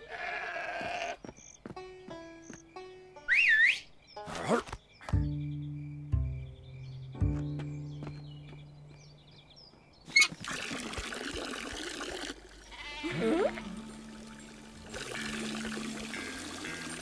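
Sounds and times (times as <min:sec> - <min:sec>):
cartoon sheep bleat: 0:00.0 - 0:01.2, 0:12.7 - 0:13.8
water pouring from tap: 0:10.3 - 0:12.6.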